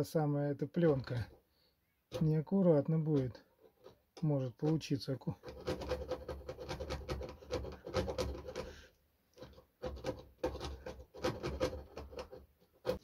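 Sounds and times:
hacksaw rasping through wood board: 5.4s - 13.0s.

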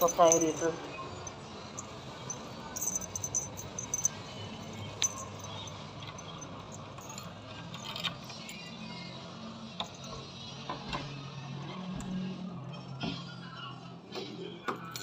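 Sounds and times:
keys jingling: 0.0s - 8.7s, 9.8s - 10.2s, 14.7s - 15.0s.

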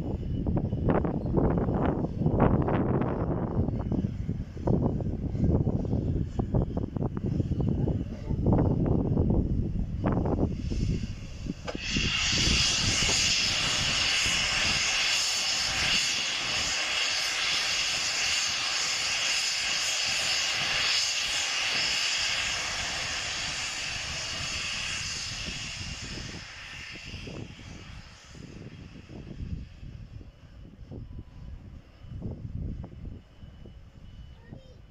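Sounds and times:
steam hissing from locomotive: 9.8s - 30.3s.

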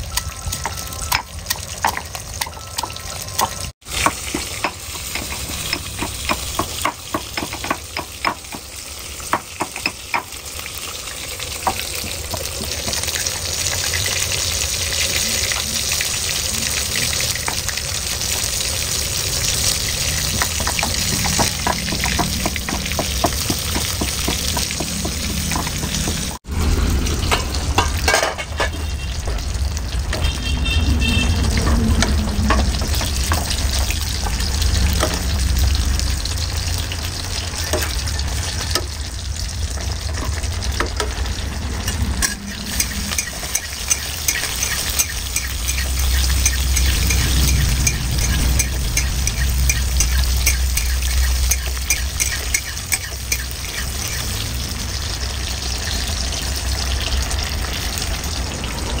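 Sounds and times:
frying sizzle: 0.0s - 59.0s
pan boiling with low rumble: 0.0s - 59.0s
pestle pounding in stone mortar: 0.6s - 8.7s, 9.3s - 10.4s, 20.3s - 26.4s
spoon clinking against pan: 42.8s - 53.9s.

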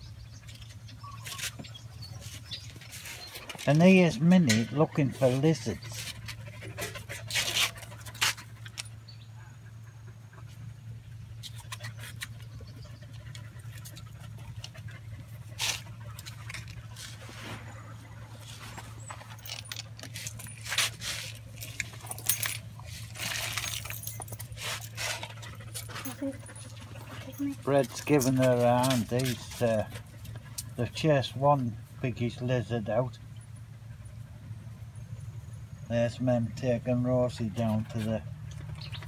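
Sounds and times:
steady low hum: 0.0s - 39.0s
dogs scuffling and rustling: 0.4s - 9.0s, 11.3s - 31.9s.

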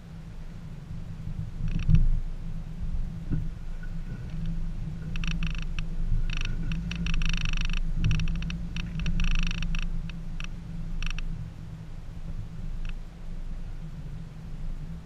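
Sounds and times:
car engine running at low revs: 0.0s - 15.0s
buzzing rattles: 3.8s - 11.4s.

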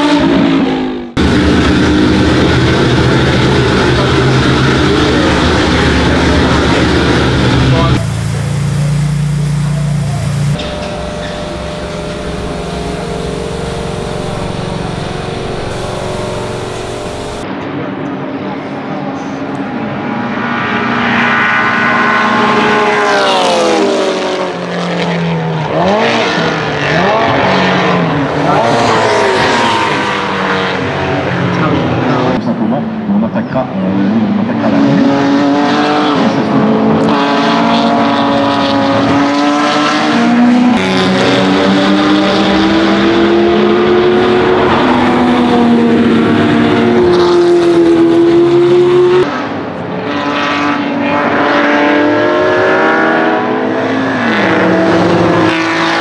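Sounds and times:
car engine idling loudly: 1.2s - 17.4s
car engine note falling: 1.2s - 17.4s
racing car passing at high revs: 19.6s - 32.4s, 33.9s - 56.0s.

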